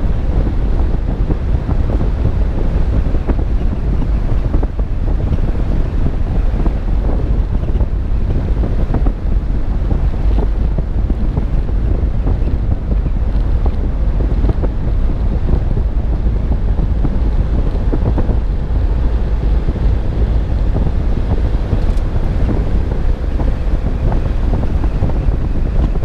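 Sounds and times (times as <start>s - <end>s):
low road rumble: 0.0s - 26.0s
wind buffeting microphone: 0.0s - 26.0s.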